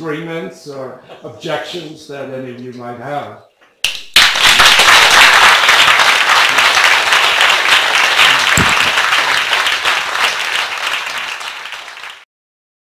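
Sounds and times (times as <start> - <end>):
audience applauding: 3.9 - 12.3.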